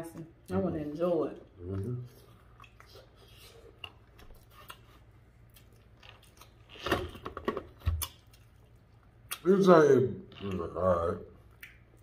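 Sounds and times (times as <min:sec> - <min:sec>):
person chewing food: 0:01.5 - 0:09.5, 0:11.4 - 0:12.0.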